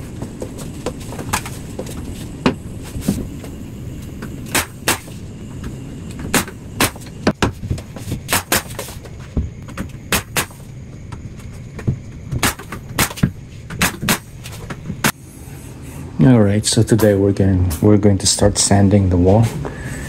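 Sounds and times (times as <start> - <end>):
nail gun shots: 4.5 - 5.1, 8.3 - 8.8, 10.1 - 10.6, 12.4 - 14.3.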